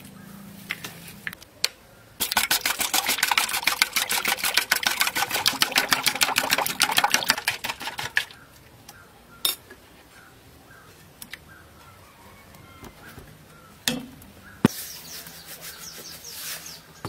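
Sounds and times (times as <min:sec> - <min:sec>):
eggs beaten with metal utensil: 0:02.2 - 0:08.3.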